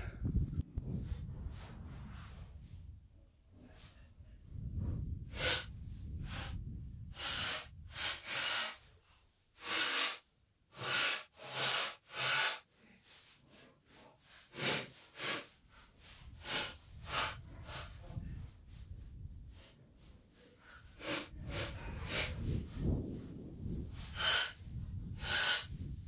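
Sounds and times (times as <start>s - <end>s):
low rumble: 0.0s - 3.3s.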